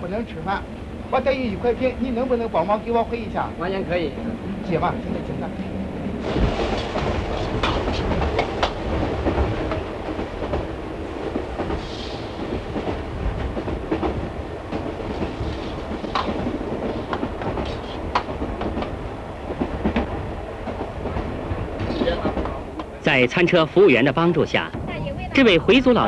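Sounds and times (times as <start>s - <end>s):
train rumbling on rails: 0.0s - 26.0s
rail clicks and knocks: 4.1s - 23.5s.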